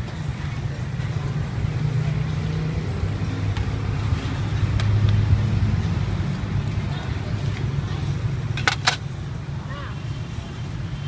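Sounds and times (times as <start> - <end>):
traffic rumble: 0.0 - 11.0
faint voices: 5.4 - 10.8.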